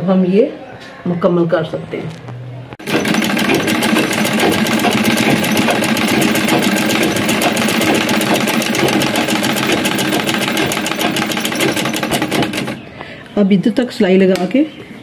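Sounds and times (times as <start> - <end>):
sewing machine running: 2.8 - 12.9.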